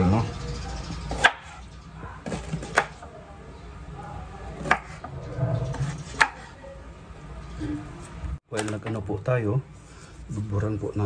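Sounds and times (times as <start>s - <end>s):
knife chopping on wooden board: 1.1s - 1.6s, 2.2s - 3.0s, 4.6s - 5.0s, 5.7s - 6.5s.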